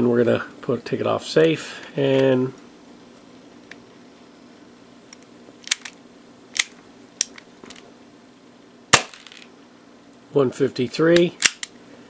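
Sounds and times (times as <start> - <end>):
gas pistol shot: 8.9 - 9.4
pistol action clicks: 11.4 - 11.8.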